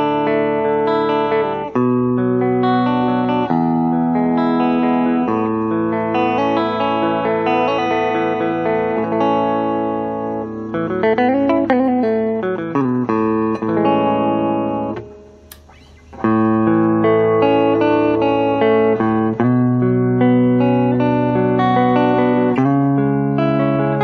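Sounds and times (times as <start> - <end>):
electric guitar through amplifier: 0.0 - 24.0
sharp click: 15.4 - 16.6.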